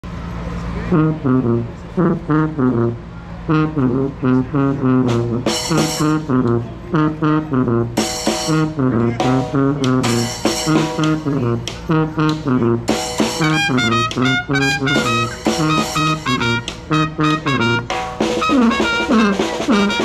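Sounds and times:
sousaphone bass line: 0:00.9 - 0:20.0
trumpet playing: 0:00.9 - 0:20.0
snare drum groove: 0:04.9 - 0:20.0.

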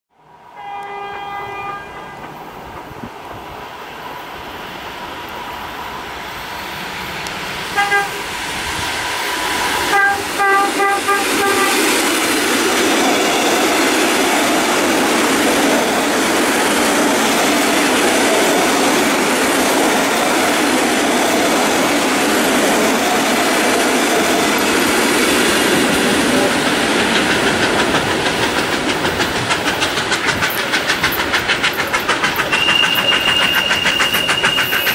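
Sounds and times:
train horn: 0:00.5 - 0:02.4, 0:07.7 - 0:08.3, 0:09.9 - 0:12.0
train wheels rumbling on rails: 0:00.7 - 0:34.9.

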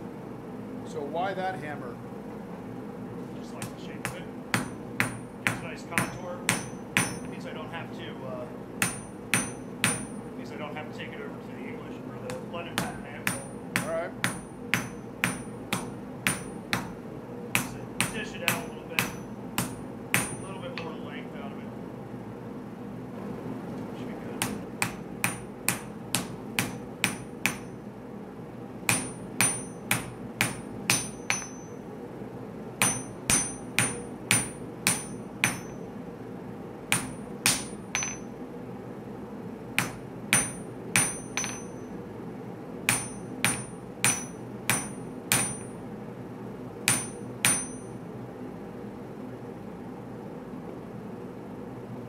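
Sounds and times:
hammer blows on anvil: 0:03.6 - 0:07.5, 0:08.8 - 0:10.3, 0:12.3 - 0:21.0, 0:24.4 - 0:27.8, 0:28.9 - 0:31.8, 0:32.8 - 0:35.8, 0:36.9 - 0:38.3, 0:39.8 - 0:42.0, 0:42.9 - 0:45.8, 0:46.9 - 0:48.0.

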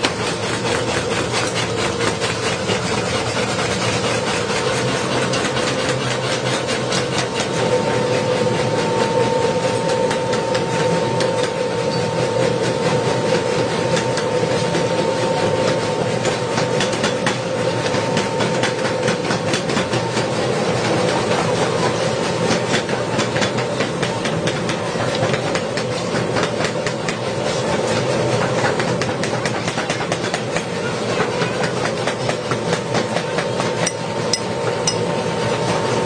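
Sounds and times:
steady hum: 0:00.0 - 0:22.8.

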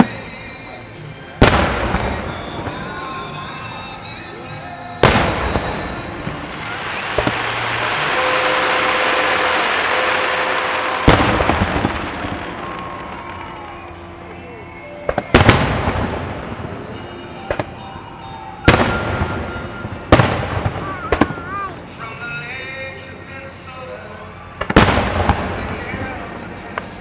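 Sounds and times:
firework booms: 0:01.4 - 0:03.2, 0:05.0 - 0:13.6, 0:15.1 - 0:16.8, 0:18.7 - 0:21.5, 0:24.6 - 0:26.3
long rushing noise: 0:05.2 - 0:14.3.

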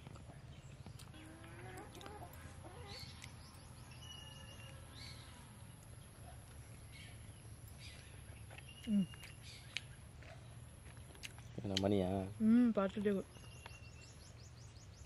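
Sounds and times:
faint bird calls: 0:06.2 - 0:10.6.

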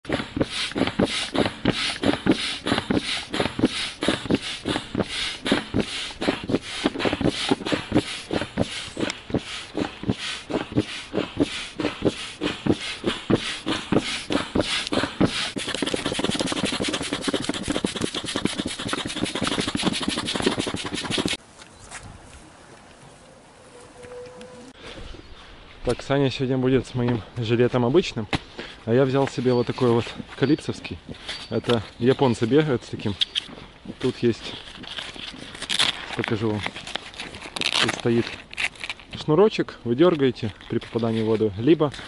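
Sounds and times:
manual air pump puffing: 0:00.0 - 0:21.4, 0:31.0 - 0:32.0, 0:33.2 - 0:39.1
air hissing: 0:00.1 - 0:21.4.

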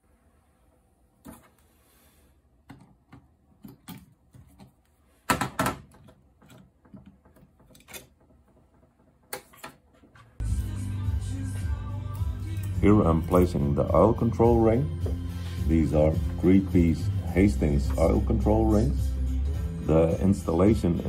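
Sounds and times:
metal tools clicking and knocking: 0:05.6 - 0:08.7
music: 0:10.4 - 0:21.0.

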